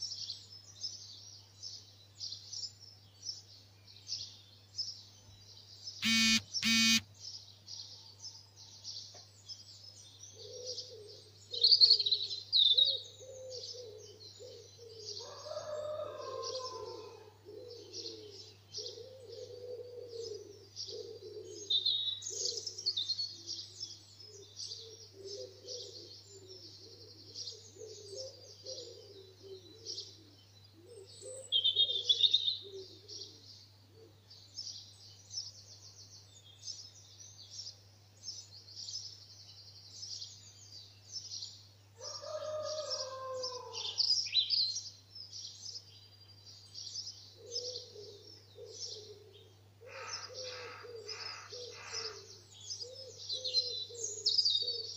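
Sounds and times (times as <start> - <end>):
songbirds chirping: 0.0 - 54.9
harsh bird calls: 6.0 - 7.0, 47.4 - 54.9.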